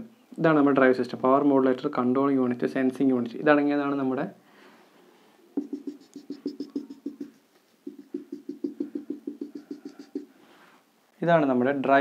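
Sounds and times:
marker squeaking on whiteboard: 5.6s - 10.3s.

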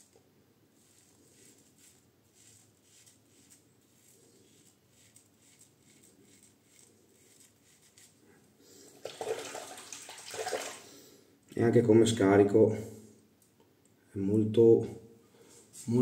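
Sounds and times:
razor scraping through beard: 0.8s - 8.3s
tap water running: 8.9s - 10.8s.

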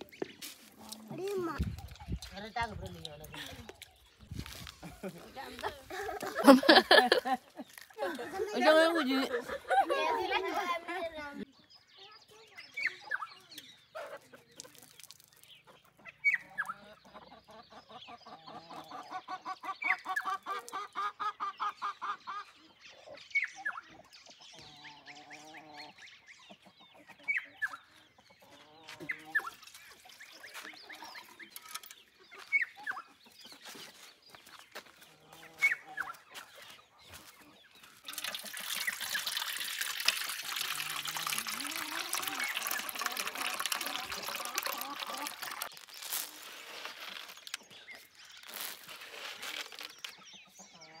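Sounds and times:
poultry clucking: 12.8s - 14.9s, 15.6s - 39.1s, 49.8s - 51.0s
water pouring into metal dish: 38.0s - 46.4s.

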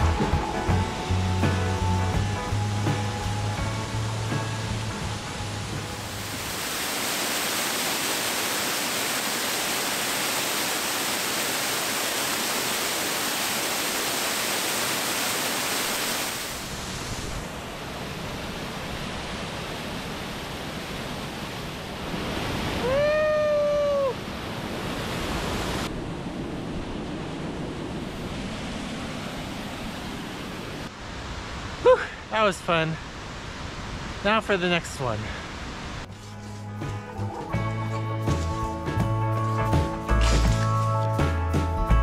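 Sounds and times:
waterfall roaring: 4.8s - 36.1s.

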